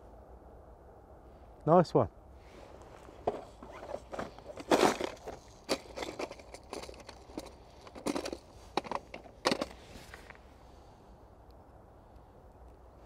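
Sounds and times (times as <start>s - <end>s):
fishing tackle rustling and clicking: 2.9s - 10.4s.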